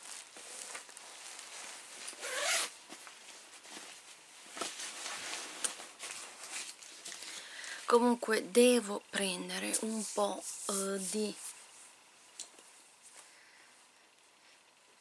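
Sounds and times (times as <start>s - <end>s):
objects rustling and scraping: 0.0s - 7.9s
zip-like rasp: 2.2s - 2.7s.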